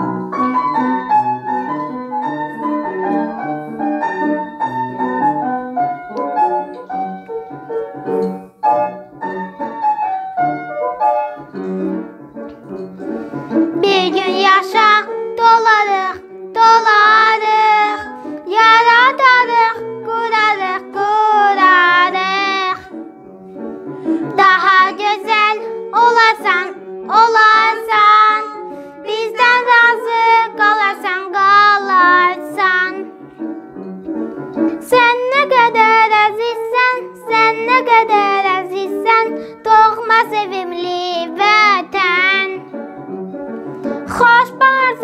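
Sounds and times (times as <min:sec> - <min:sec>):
instrumental accompaniment: 0:00.0 - 0:45.0
child singing: 0:13.8 - 0:23.0, 0:24.2 - 0:33.1, 0:34.7 - 0:42.7, 0:44.0 - 0:45.0.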